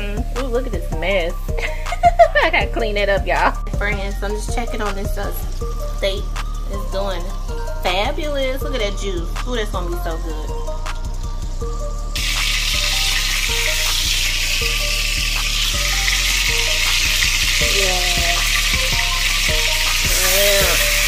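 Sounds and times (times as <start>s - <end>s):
shrimp sizzling in butter: 12.2s - 21.0s.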